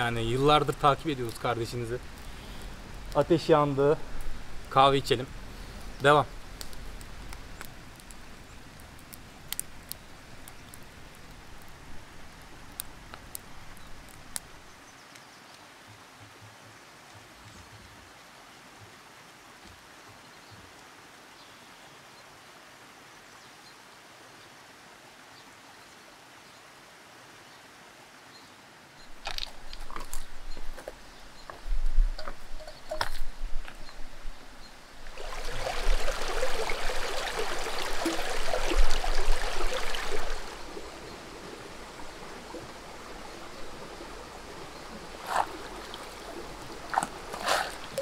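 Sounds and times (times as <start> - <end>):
fire hissing: 0.0 - 14.8, 33.3 - 48.0
fire popping: 0.0 - 15.2, 29.0 - 48.0
campfire crackling: 0.0 - 15.9, 29.0 - 48.0
footsteps on loose stones: 29.1 - 34.1.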